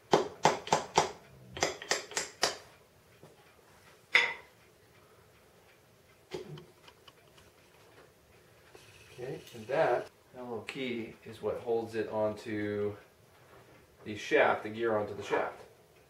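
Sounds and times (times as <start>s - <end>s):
metal taps and clinks: 4.1s - 4.5s.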